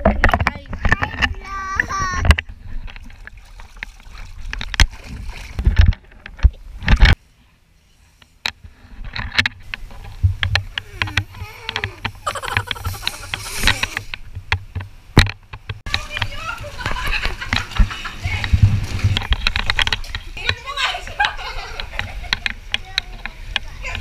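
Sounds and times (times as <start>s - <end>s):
water splashing in paddling pool: 3.0s - 5.8s, 15.9s - 24.0s
knocks and thumps: 9.0s - 20.6s.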